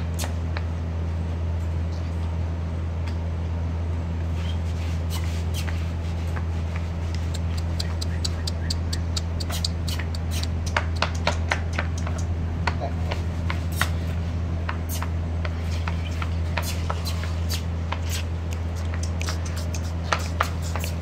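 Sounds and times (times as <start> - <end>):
low steady hum: 0.0 - 21.0
sharp clicks and ticks: 7.1 - 12.4, 16.6 - 21.0.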